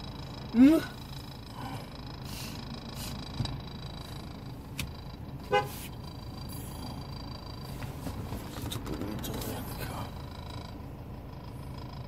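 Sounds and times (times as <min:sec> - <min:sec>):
low steady hum: 0:00.0 - 0:12.0
car horn toot: 0:05.4 - 0:05.9.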